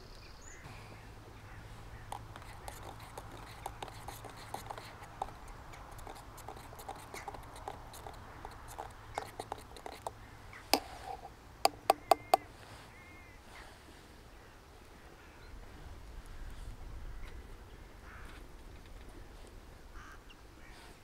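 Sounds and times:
metal spoon stirring in mug: 2.1s - 10.1s, 10.8s - 12.4s
spoon tapping metal mug: 6.0s - 10.1s, 10.8s - 12.5s.

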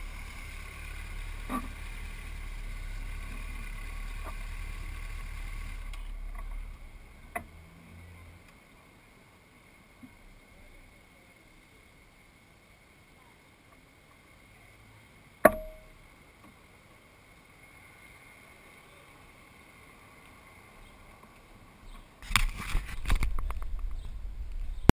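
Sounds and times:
camera handling rustling and knocking: 22.2s - 24.0s.

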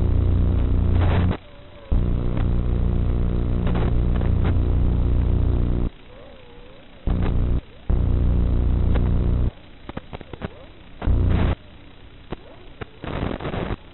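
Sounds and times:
electrical buzz: 0.0s - 5.9s, 7.0s - 10.2s, 10.9s - 12.4s
static crackles: 0.0s - 13.9s.

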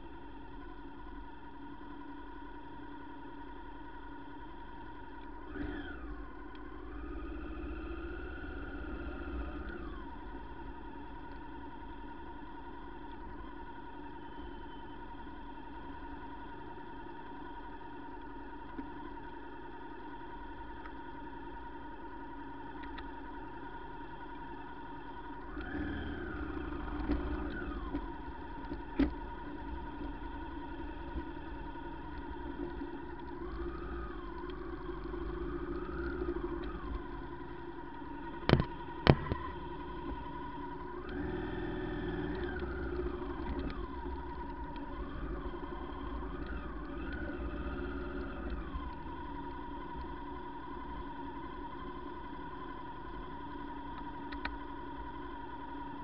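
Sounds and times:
vehicle engine running: 25.5s - 52.9s.

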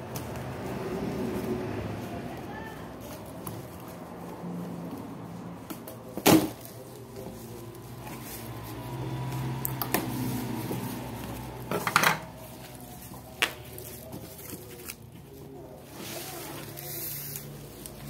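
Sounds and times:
bubble wrap crinkling: 12.3s - 18.0s.

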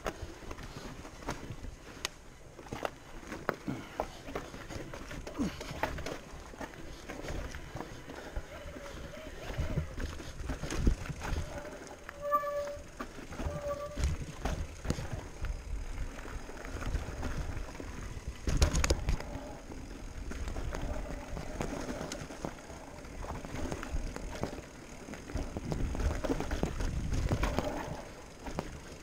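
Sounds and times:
wind rumble on microphone: 8.8s - 12.7s, 13.3s - 19.6s, 25.3s - 28.6s
bike clattering over rocks: 12.8s - 29.0s.

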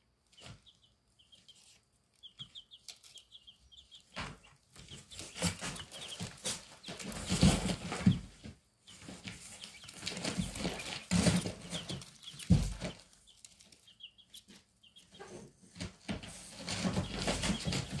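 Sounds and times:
chicks peeping: 0.2s - 18.0s
chicks scratching and fluttering: 0.2s - 18.0s
bodies bumping against cardboard: 4.1s - 13.1s.

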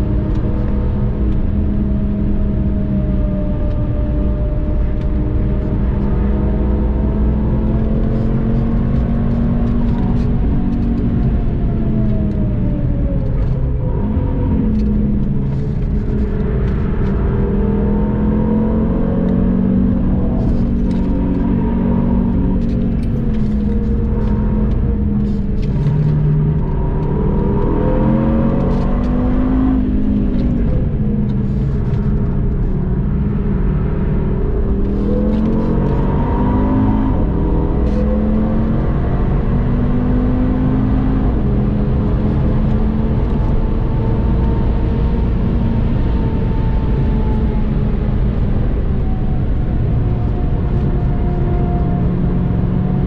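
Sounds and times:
car engine accelerating from cabin: 0.0s - 53.0s.

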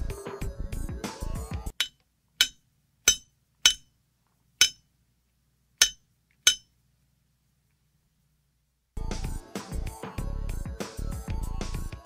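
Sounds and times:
sharp metallic clinks with ringing: 1.8s - 3.9s, 4.6s - 4.8s, 5.8s - 6.7s.

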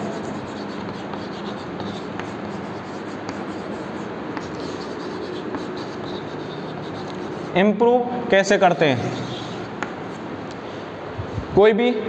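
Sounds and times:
chalk tapping: 0.0s - 7.6s, 8.6s - 10.4s
chalk scratching on blackboard: 0.0s - 7.7s, 8.4s - 10.4s.

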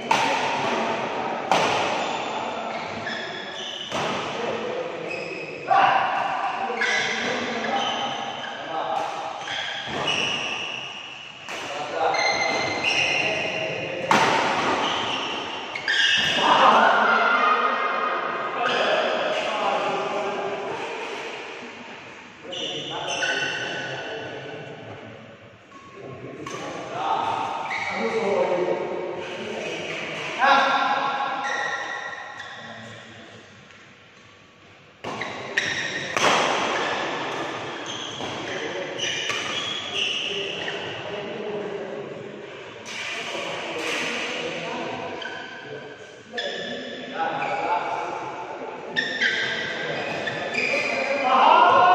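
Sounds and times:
rackets hitting shuttlecock: 0.0s - 2.2s, 14.0s - 16.4s, 35.0s - 39.8s
court shoes squeaking: 1.5s - 4.4s, 5.0s - 5.7s, 6.7s - 16.7s, 20.7s - 24.2s, 25.6s - 28.4s, 31.4s - 34.4s, 35.0s - 41.1s, 45.1s - 48.1s, 48.8s - 51.8s.

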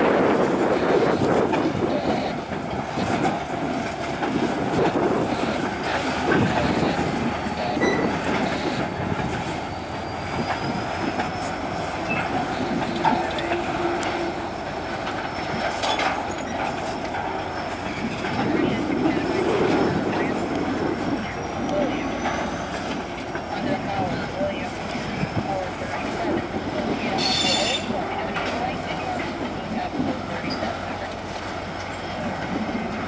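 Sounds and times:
freight train rolling past: 0.0s - 33.0s
wheels clicking over rail joints: 0.0s - 33.0s
high wheel squeal: 5.2s - 16.8s, 21.2s - 22.9s, 27.1s - 28.0s.

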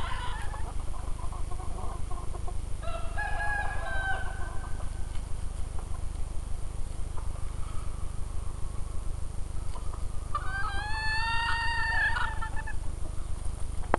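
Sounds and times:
rooster crowing: 2.8s - 5.1s, 10.3s - 12.8s
low pulsing rumble: 4.2s - 13.9s.

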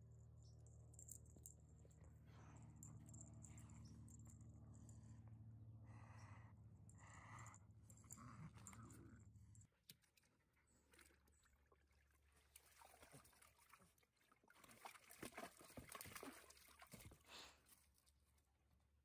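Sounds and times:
puppy splashing in water: 9.8s - 17.8s.

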